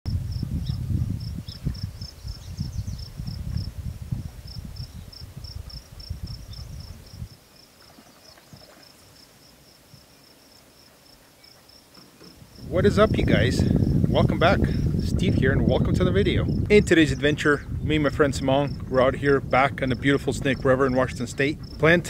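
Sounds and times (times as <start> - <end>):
cricket chirping: 0.1 - 3.7, 4.5 - 14.1
low gusty rumble: 0.1 - 7.4, 12.4 - 22.0.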